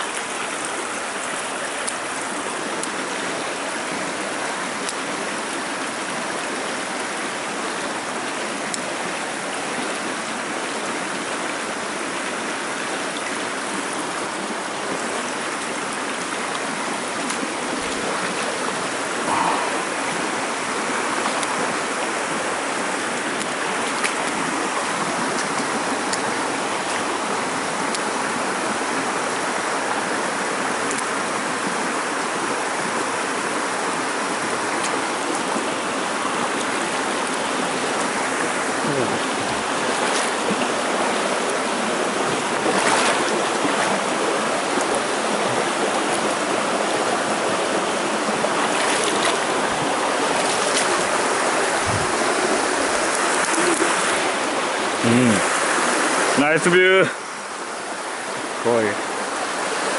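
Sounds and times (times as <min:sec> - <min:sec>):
stream rushing over stones: 0:00.0 - 0:59.9.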